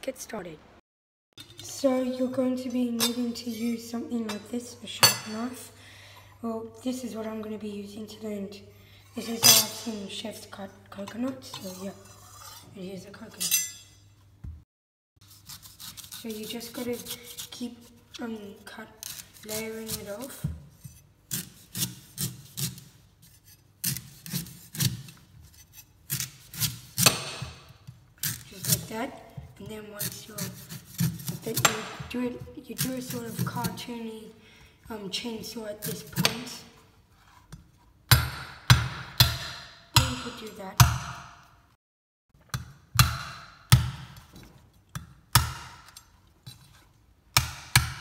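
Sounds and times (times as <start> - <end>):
knife rasping coconut husk: 15.2 - 18.0, 19.0 - 27.2, 28.2 - 29.0, 30.0 - 31.8
knife chopping coconut: 21.3 - 22.9, 23.8 - 25.2, 26.1 - 27.6, 30.0 - 32.1, 42.5 - 44.2, 47.3 - 48.0.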